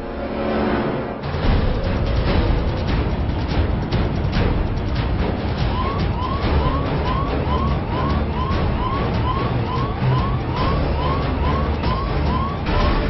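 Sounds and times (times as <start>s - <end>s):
yelp siren whooping: 5.7s - 13.0s.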